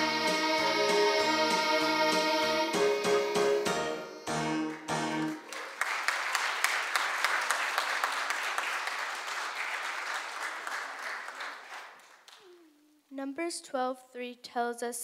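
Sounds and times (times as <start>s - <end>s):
keyboard chords: 0.0s - 5.5s
crowd applauding: 4.4s - 12.6s.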